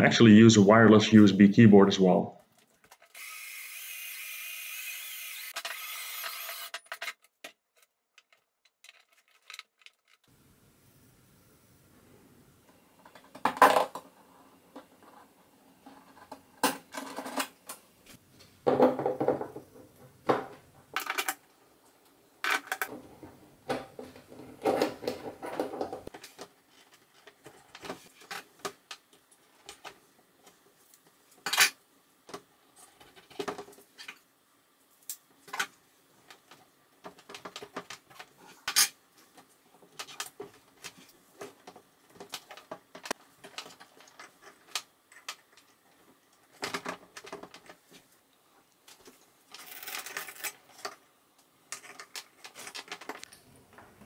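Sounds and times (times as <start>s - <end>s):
small clicks taps and rustles: 7.3s - 10.3s, 39.2s - 54.0s.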